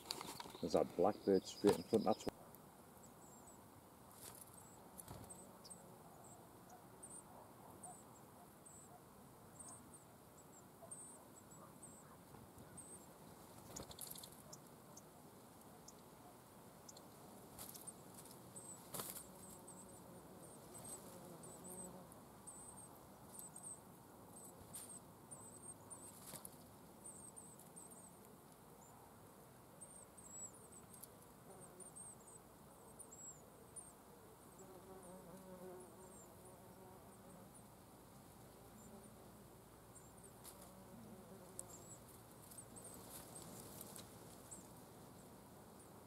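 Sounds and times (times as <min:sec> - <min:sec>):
soft rustles or clicks: 0:00.0 - 0:00.7.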